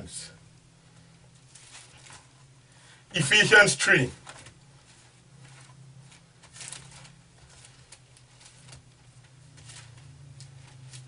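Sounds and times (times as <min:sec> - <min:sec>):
steady low hum: 0:00.0 - 0:11.0
thin paper pages rustling: 0:01.4 - 0:02.5, 0:04.2 - 0:11.0.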